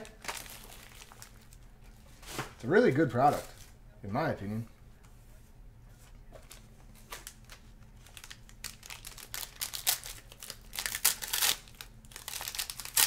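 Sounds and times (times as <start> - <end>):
foil wrapper crinkling: 0.0 - 3.8, 6.4 - 13.0.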